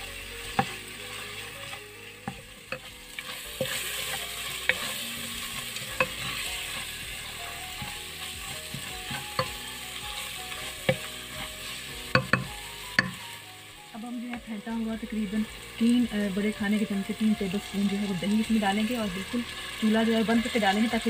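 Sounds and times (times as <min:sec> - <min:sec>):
food sizzling: 0:00.0 - 0:21.0
spatula scraping a metal pot: 0:00.5 - 0:09.6, 0:10.2 - 0:13.2
spatula tapping a pot: 0:08.7 - 0:09.6, 0:10.5 - 0:11.4, 0:12.0 - 0:13.2.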